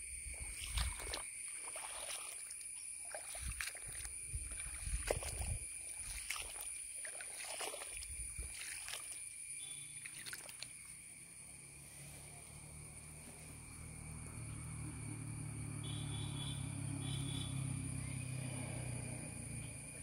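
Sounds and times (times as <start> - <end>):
footsteps squelching through water: 0.3 - 11.1
high-pitched ringing drone: 11.6 - 20.0.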